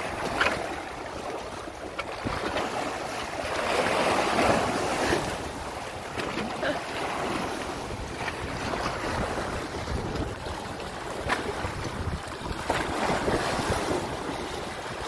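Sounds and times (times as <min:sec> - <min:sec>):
water lapping against rocks: 0:00.0 - 0:15.0
wind buffeting microphone: 0:07.2 - 0:15.0.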